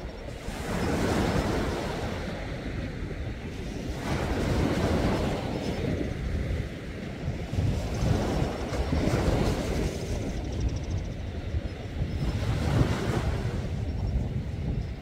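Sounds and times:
sea waves washing: 0.0s - 10.6s
wind on microphone: 0.0s - 15.0s.

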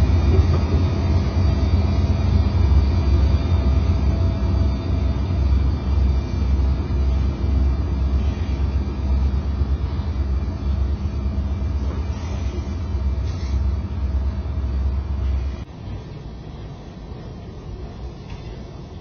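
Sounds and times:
freight train wheels rumbling on rail: 0.0s - 19.0s.

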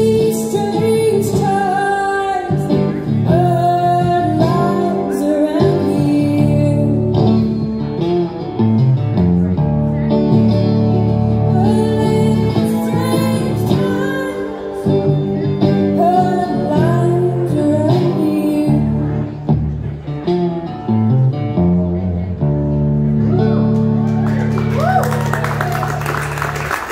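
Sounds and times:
woman singing: 0.0s - 7.6s, 11.5s - 19.3s
resonator guitar: 0.0s - 26.9s.

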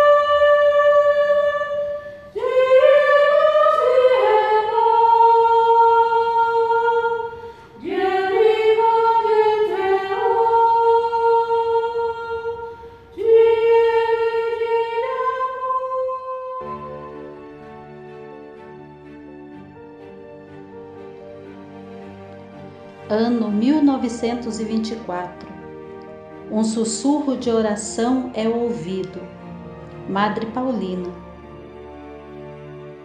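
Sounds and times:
unaccompanied singing voices: 0.0s - 17.2s.

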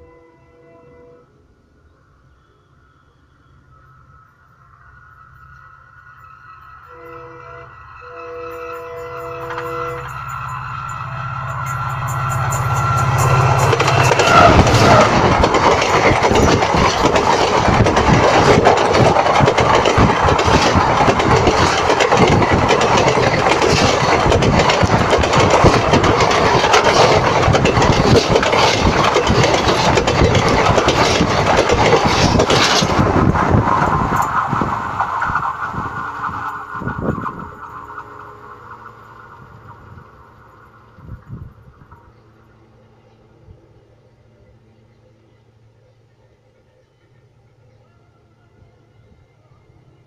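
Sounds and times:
train wheels clattering on rails: 9.2s - 42.0s.

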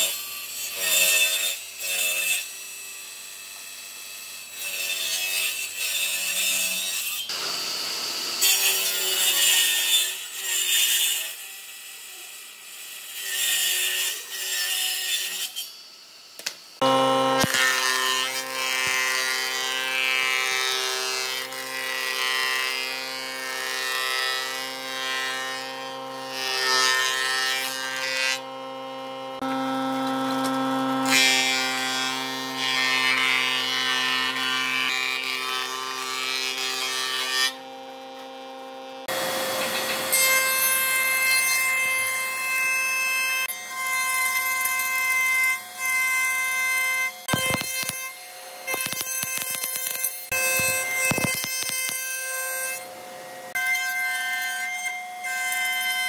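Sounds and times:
planer cutting wood: 3.5s - 12.4s, 16.8s - 55.9s
machine humming: 16.8s - 17.7s.

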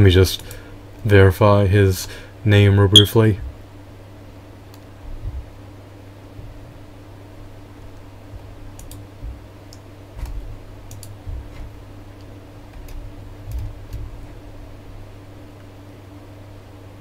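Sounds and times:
low electrical hum: 0.0s - 17.0s
keyboard typing clicks: 8.7s - 9.1s, 9.7s - 11.2s, 12.2s - 14.1s.

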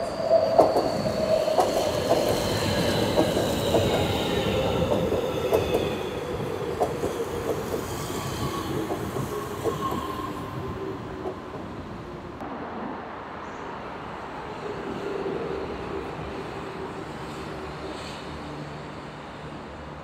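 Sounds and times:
train wheels rumbling on rails: 0.0s - 12.5s.

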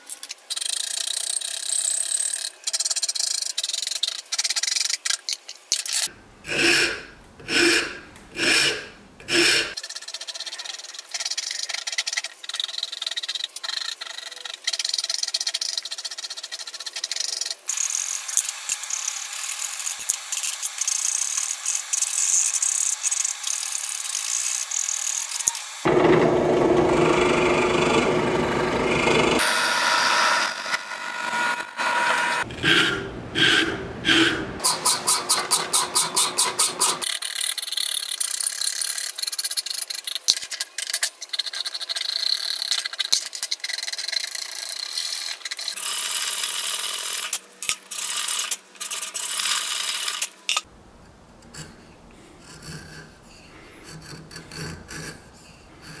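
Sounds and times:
rasp scraping wood: 6.5s - 9.8s
drill press running: 25.8s - 37.0s.

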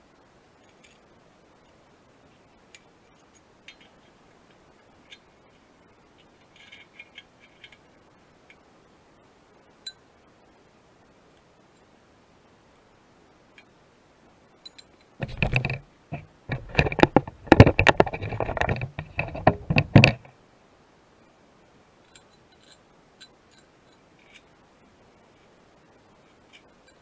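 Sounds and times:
clattering knocks and scraping: 15.2s - 20.3s.

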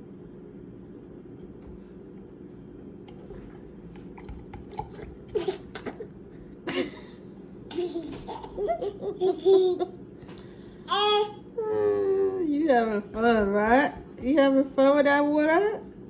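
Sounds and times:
toddler laughing: 7.7s - 10.0s.

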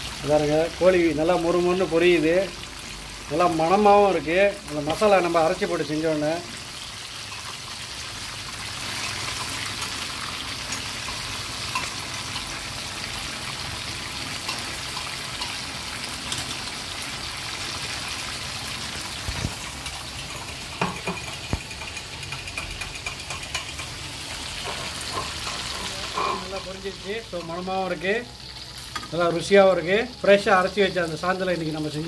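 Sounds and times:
chicken deep-frying in oil: 0.0s - 32.0s.

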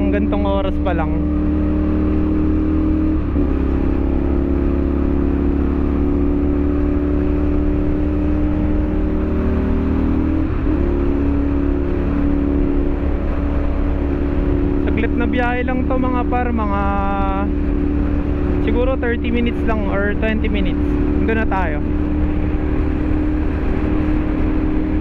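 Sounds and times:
motorcycle engine at speed: 0.0s - 25.0s
wind rush: 7.7s - 25.0s.

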